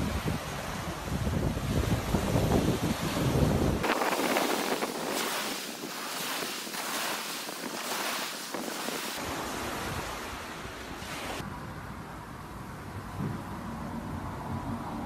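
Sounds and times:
wind buffeting microphone: 0.0s - 10.2s
surf breaking on shore: 1.7s - 11.4s.

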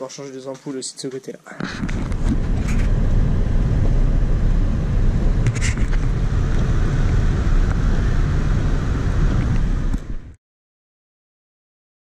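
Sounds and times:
car cabin road and engine rumble: 1.6s - 10.4s.

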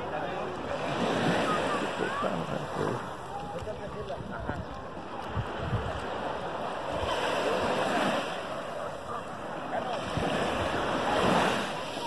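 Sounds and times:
small waves washing on sand: 0.0s - 12.0s
wind thumps on microphone: 3.3s - 6.1s.

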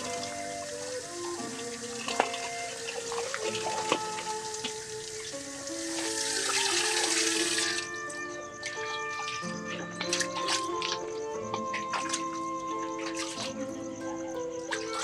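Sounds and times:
water running from tap: 0.0s - 10.9s
gentle melodic music: 0.0s - 15.0s.

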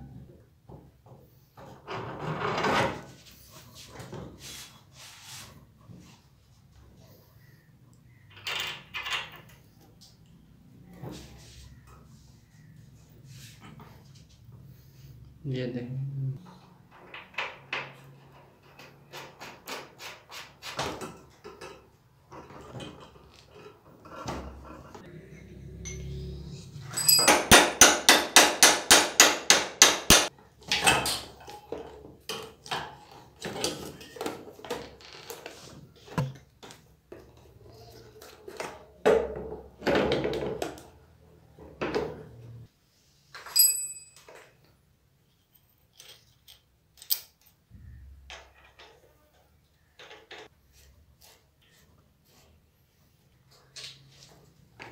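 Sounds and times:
ringing metal strikes: 26.9s - 27.8s
metal parts knocking and clinking: 26.9s - 28.8s.

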